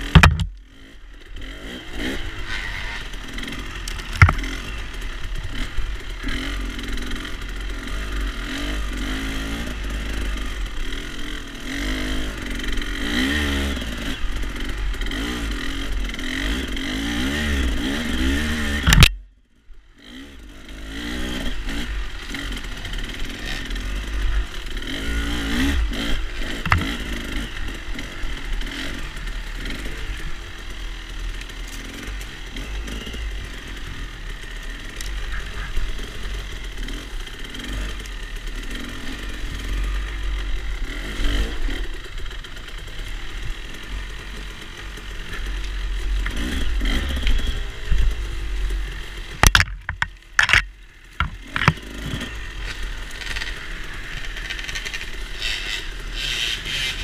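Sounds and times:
dirt bike engines: 0:00.0 - 0:57.0.

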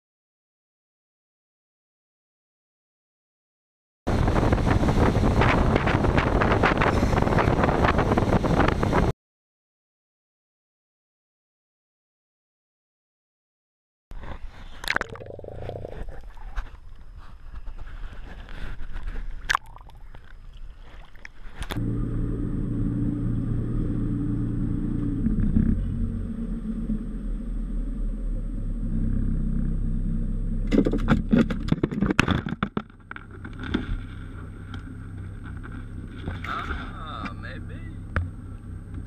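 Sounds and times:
water sloshing: 0:18.8 - 0:22.2, 0:30.6 - 0:37.4
outboard motor idling: 0:21.7 - 0:39.0.

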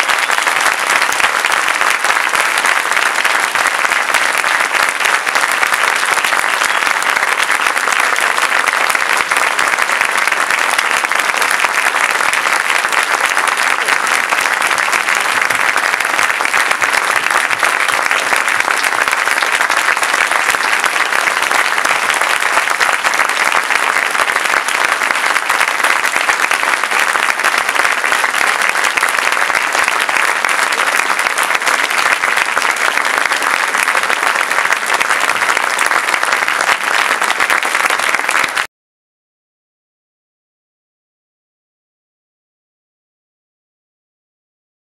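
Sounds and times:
large audience applauding: 0:00.0 - 0:38.7.

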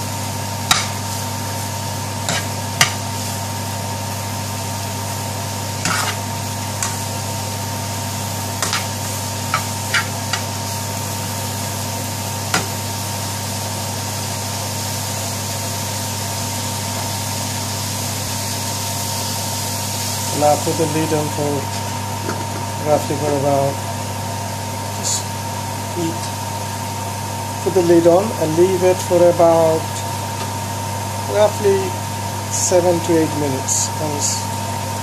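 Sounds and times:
frying sizzle: 0:00.0 - 0:35.0
metal spoon scraping frying pan: 0:02.2 - 0:03.0, 0:05.8 - 0:07.1, 0:08.6 - 0:10.5.

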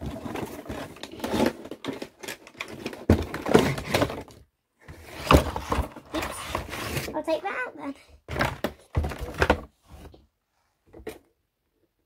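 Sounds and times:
cardboard scraping and rustling: 0:00.0 - 0:07.3.

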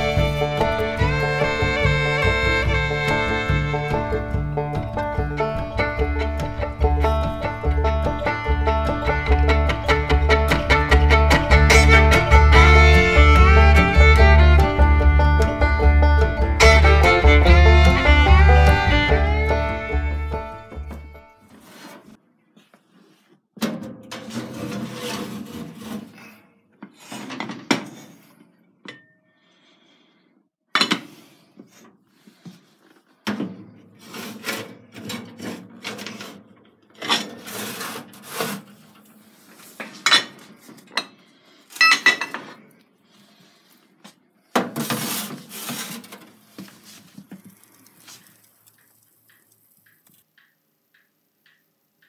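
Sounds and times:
cooking pots scraping on metal: 0:00.0 - 0:15.5, 0:24.2 - 0:26.4, 0:34.0 - 0:42.3, 0:44.6 - 0:47.2
pots clanking: 0:39.8 - 0:42.6.

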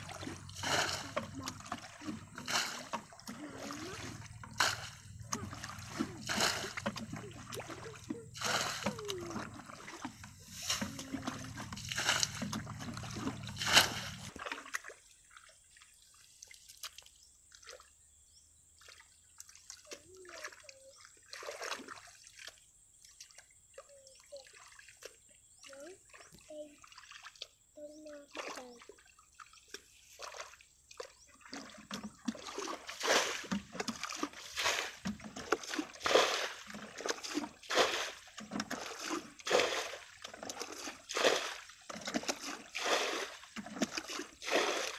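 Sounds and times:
hands scooping mud: 0:00.0 - 0:14.7, 0:29.8 - 0:44.9
water splashing and sloshing: 0:00.0 - 0:44.9.

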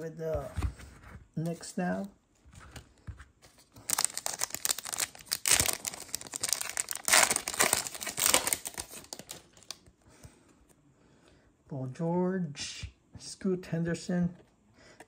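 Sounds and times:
foil wrapper crinkling: 0:03.8 - 0:09.8.

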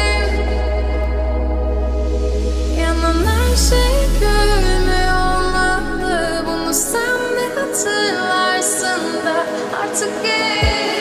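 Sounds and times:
deep bass: 0:00.0 - 0:07.8
sustained sliding melody: 0:01.2 - 0:07.8.

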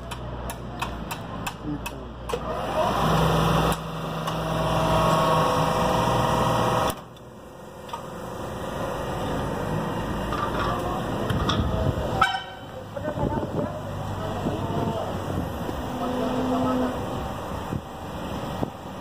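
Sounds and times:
electric motor and pump humming: 0:02.3 - 0:12.0.

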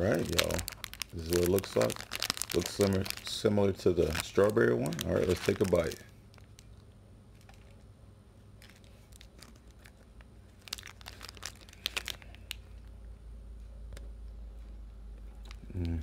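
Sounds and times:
snack wrapper crinkling: 0:00.0 - 0:07.9, 0:08.6 - 0:13.0.

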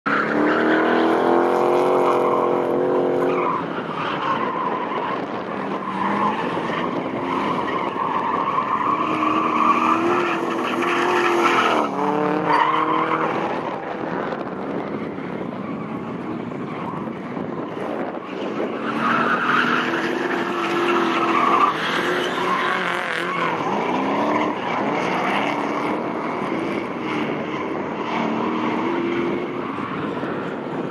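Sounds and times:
tyres squealing and skidding: 0:00.1 - 0:30.9
car engine revving: 0:17.7 - 0:30.8.

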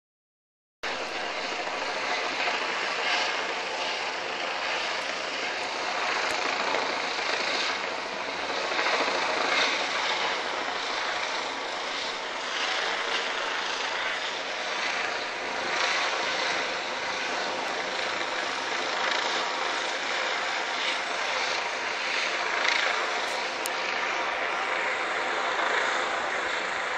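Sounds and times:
helicopter engine and rotor drone: 0:00.8 - 0:26.9.

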